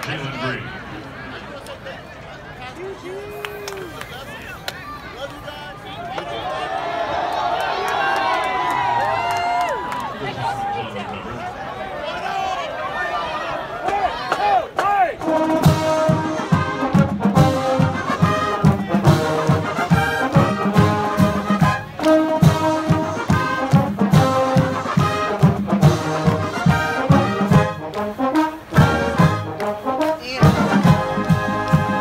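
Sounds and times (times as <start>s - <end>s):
marching drum beat: 15.2s - 32.0s
trumpets and trombones playing: 15.2s - 32.0s.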